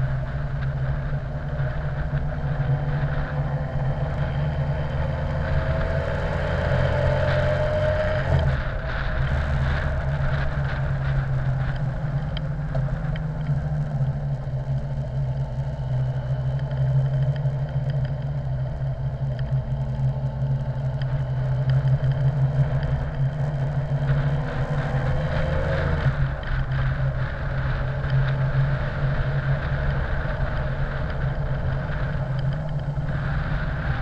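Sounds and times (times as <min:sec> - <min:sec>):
motorcycle engine running: 0:00.0 - 0:34.0
wind and road noise: 0:00.0 - 0:34.0.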